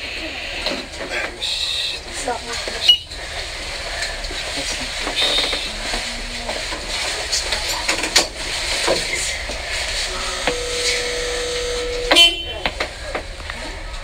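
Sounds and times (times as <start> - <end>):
steady noisy hiss: 0.0 - 14.0
buzzer-like tone: 10.1 - 12.7.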